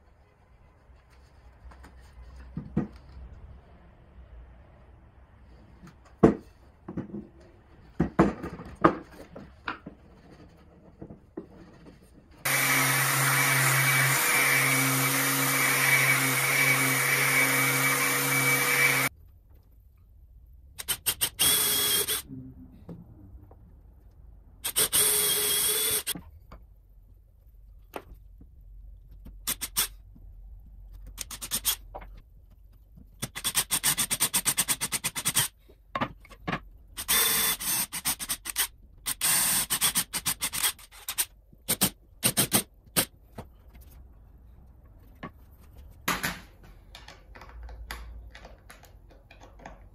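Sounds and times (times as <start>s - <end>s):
cordless drill boring wood: 12.5s - 19.1s, 21.2s - 22.2s, 24.6s - 26.1s, 37.0s - 41.2s.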